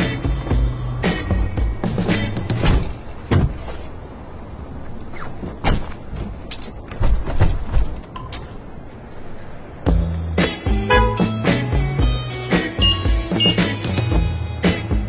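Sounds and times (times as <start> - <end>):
car door thudding: 2.5 - 3.7.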